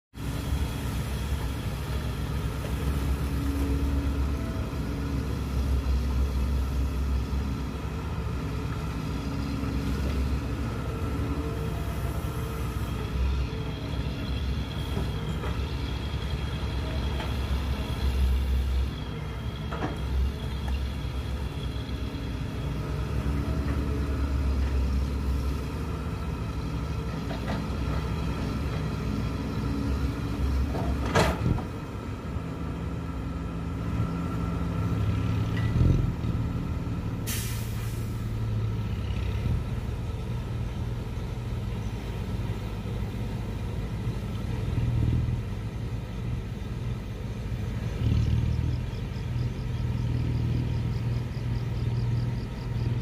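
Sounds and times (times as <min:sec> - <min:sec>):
excavator diesel engine: 0:00.1 - 0:53.0
air hiss: 0:37.2 - 0:38.4.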